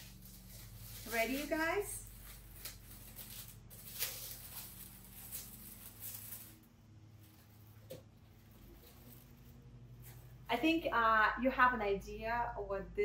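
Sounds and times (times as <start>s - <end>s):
tissue paper crinkling: 0.0s - 10.5s.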